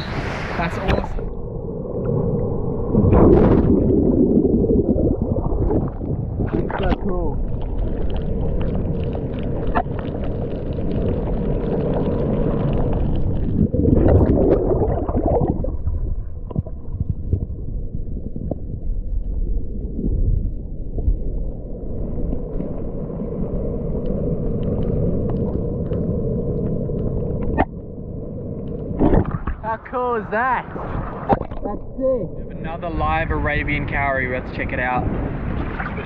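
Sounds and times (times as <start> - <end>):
underwater rumble and gurgling: 0.0 - 36.0.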